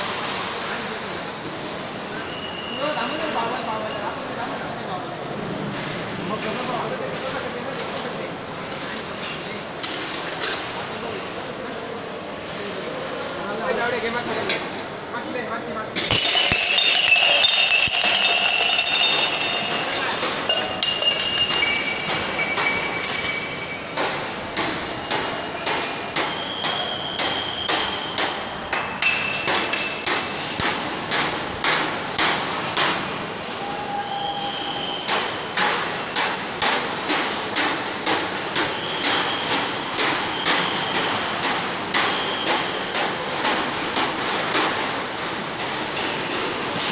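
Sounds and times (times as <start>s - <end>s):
steel tumblers knocking on metal: 16.0s - 24.0s.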